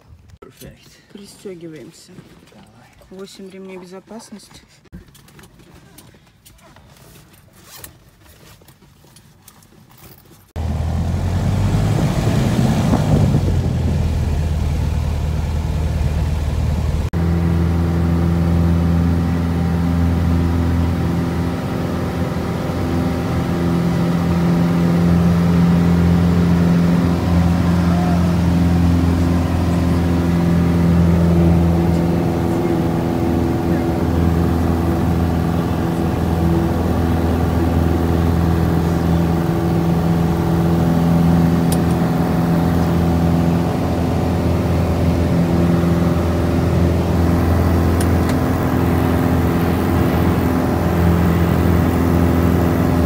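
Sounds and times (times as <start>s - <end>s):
propeller plane engine drone: 10.6s - 53.0s.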